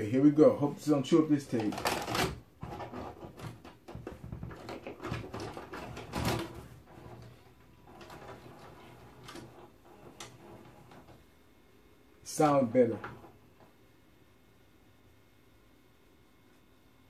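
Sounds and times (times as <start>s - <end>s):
video recorder mechanism clicks and clunks: 1.5s - 7.2s.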